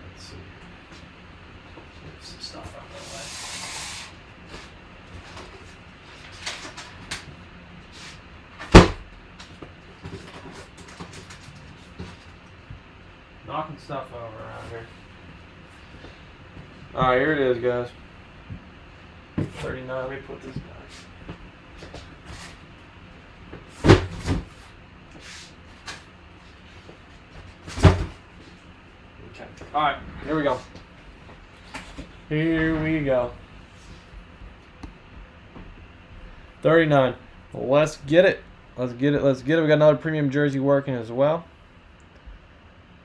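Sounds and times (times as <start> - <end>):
loud thump of objects falling: 8.6 - 9.1, 23.8 - 24.5, 27.7 - 28.2.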